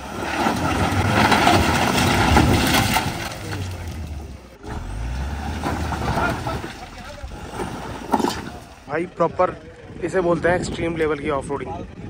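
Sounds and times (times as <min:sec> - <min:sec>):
tyres crunching over stones: 0:00.0 - 0:09.0
engine revving hard: 0:00.8 - 0:08.2.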